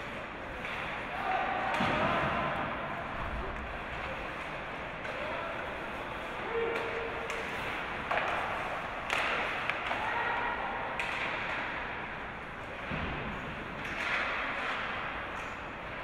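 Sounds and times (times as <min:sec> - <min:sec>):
stick and puck clacks: 0:00.0 - 0:02.8, 0:03.4 - 0:16.0
thud: 0:01.6 - 0:02.6, 0:12.8 - 0:13.5.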